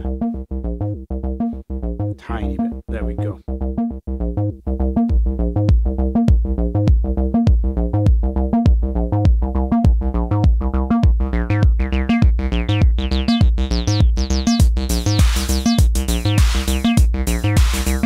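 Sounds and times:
squelchy acid bassline: 0.0 - 18.0
steady kick drum: 5.1 - 18.0
hissing hi-hat pattern: 14.0 - 18.0.

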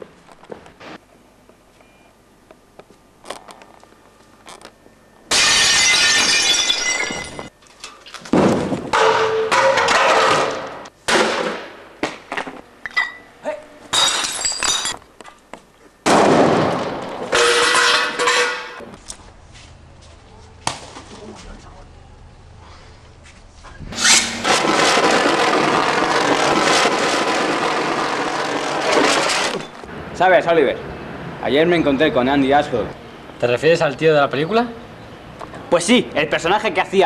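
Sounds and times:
loud crashing and breaking: 5.3 - 7.5, 8.3 - 11.7, 16.0 - 18.8, 24.0 - 29.8.

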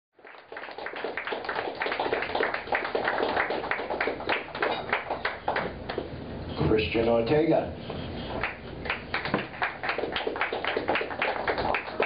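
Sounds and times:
audience clapping: 0.2 - 6.2, 8.4 - 12.0.

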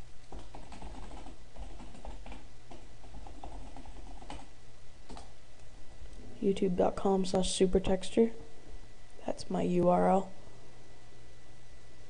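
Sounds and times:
low steady hum: 0.0 - 12.0
keyboard typing clicks: 0.2 - 4.5, 5.1 - 5.3.

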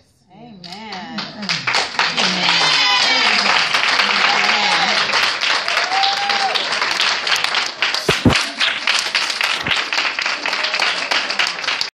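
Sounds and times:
congregation applauding: 1.7 - 11.9
brief bumps: 8.0 - 8.4.

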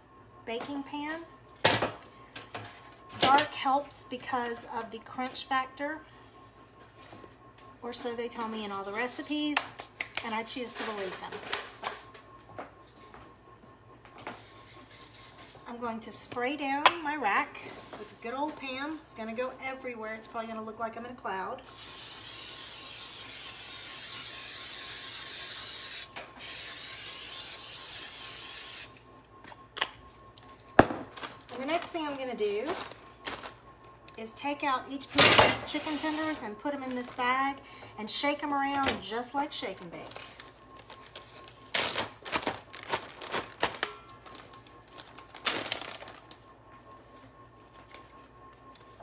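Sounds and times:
aerosol spray hissing: 21.7 - 28.9
plastic bag crinkling: 31.0 - 33.6, 40.0 - 46.4.

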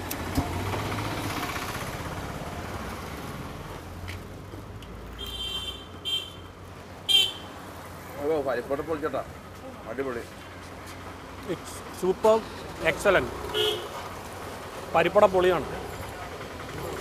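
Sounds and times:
vehicle rumbling past: 0.0 - 5.1, 11.0 - 17.0.

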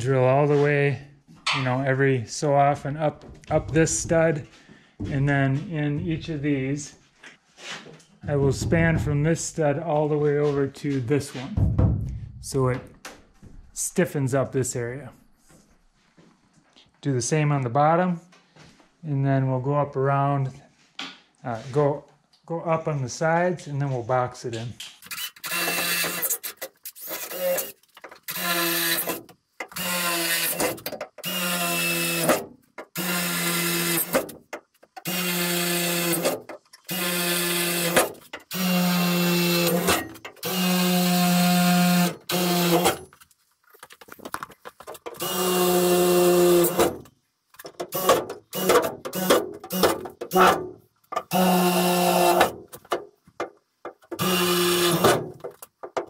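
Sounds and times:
cordless drill bursts: 25.1 - 32.4, 33.0 - 34.3, 35.0 - 43.0, 45.2 - 47.0, 47.9 - 50.6, 51.3 - 52.6, 54.2 - 55.3.

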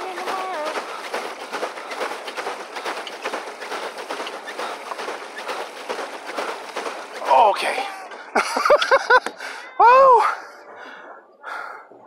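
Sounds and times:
paddle wheel splashing water: 0.0 - 9.6.

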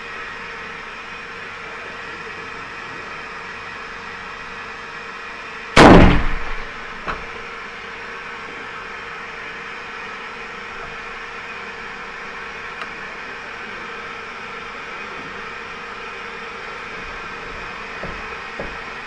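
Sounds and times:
rifle shot: 5.8 - 6.8.

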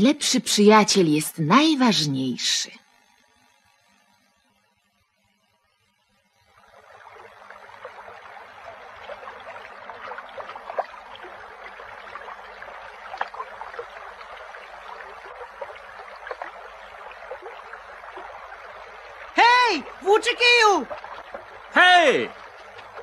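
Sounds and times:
stream babbling and gurgling: 6.3 - 23.0
water plinks: 6.6 - 23.0.

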